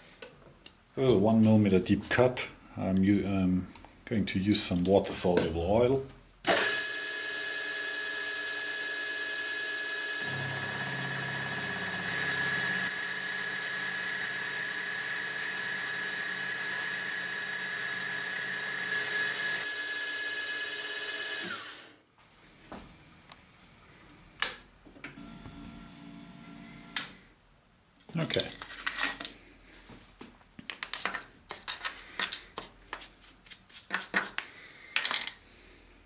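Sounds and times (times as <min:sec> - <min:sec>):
milling machine whine: 0:07.7 - 0:24.4.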